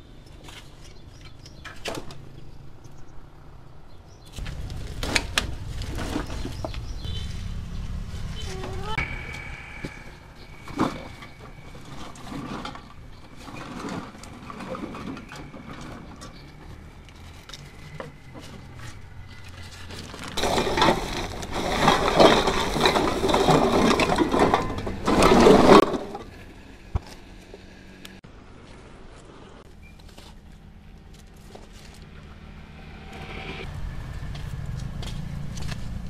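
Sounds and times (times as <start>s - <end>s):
plastic bottles and sacks crackling: 4.3s - 7.4s, 10.4s - 26.3s.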